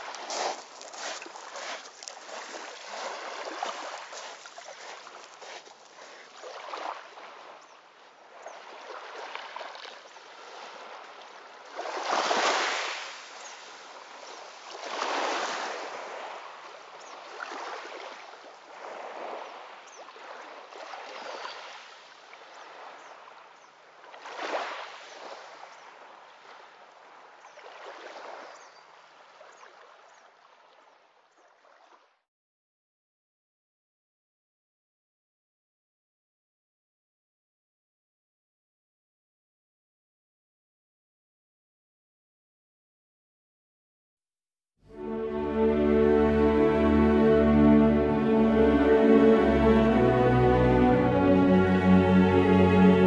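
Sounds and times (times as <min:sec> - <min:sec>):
waves washing onto pebbles: 0:00.0 - 0:07.0, 0:11.6 - 0:16.5.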